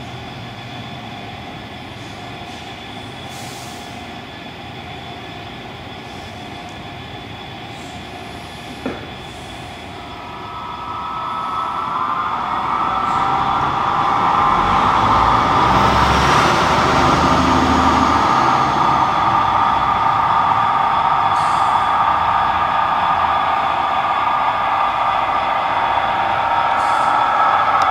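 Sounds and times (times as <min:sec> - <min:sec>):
model train wheels on rails: 0:00.0 - 0:27.9
diesel engine sound from speaker: 0:08.8 - 0:27.9.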